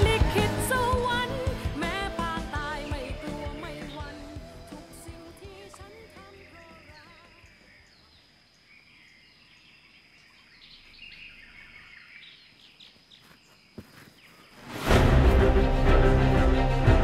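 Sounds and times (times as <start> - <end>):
background music: 0.0 - 7.1, 14.7 - 17.0.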